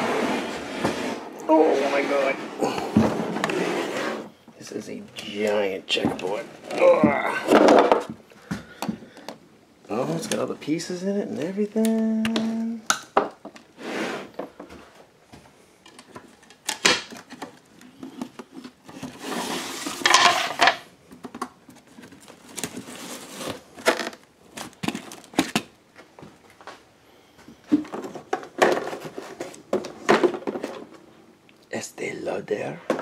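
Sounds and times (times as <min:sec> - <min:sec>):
rustling scrape: 0:00.0 - 0:04.4, 0:13.7 - 0:15.0, 0:18.0 - 0:20.6, 0:21.8 - 0:23.8
objects knocking and clattering: 0:06.0 - 0:09.4, 0:19.9 - 0:22.9, 0:27.5 - 0:31.1.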